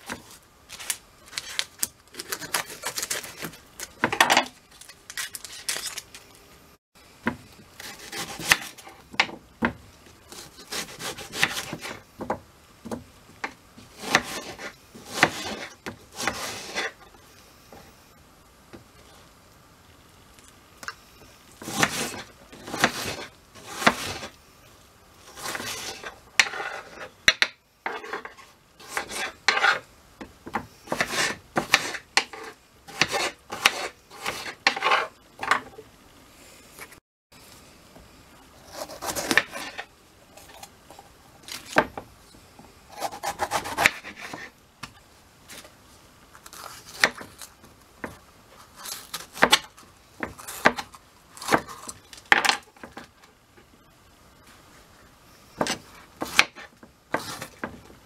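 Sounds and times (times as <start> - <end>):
knife slicing onion on board: 7.3 - 13.0, 13.8 - 17.0, 21.6 - 24.3, 25.2 - 29.8, 30.5 - 35.6, 38.7 - 39.9, 42.9 - 44.5, 48.8 - 52.9, 55.6 - 57.7.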